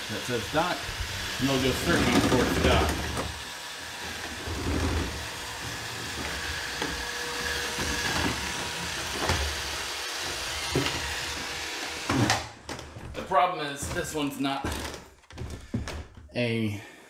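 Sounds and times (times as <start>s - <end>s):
robot vacuum motors whirring: 0.0s - 12.8s.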